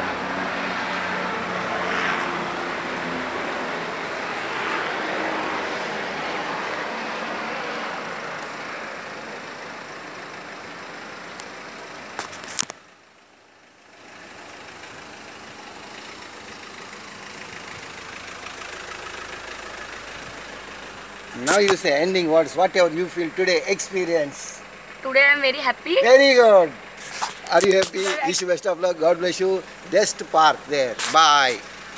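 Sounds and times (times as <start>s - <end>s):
car engine running: 0.0s - 31.9s.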